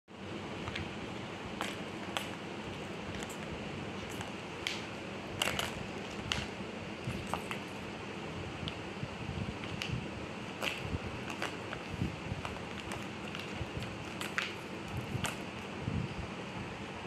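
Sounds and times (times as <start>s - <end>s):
steady low hiss: 0.1s - 17.0s
plastic balls clicking in cat toy: 3.1s - 7.7s, 10.6s - 15.7s.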